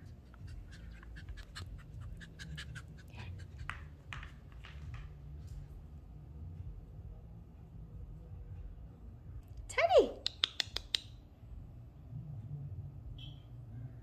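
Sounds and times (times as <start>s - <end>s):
puppy panting: 0.0s - 5.0s.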